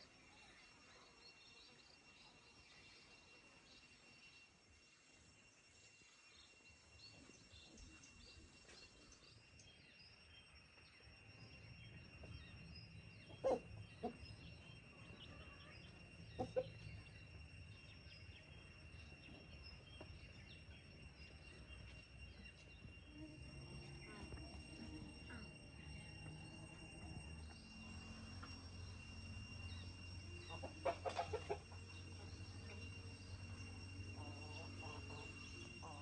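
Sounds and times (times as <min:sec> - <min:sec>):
steady high tone: 0:20.2 - 0:36.0
chicken clucking: 0:30.5 - 0:31.8.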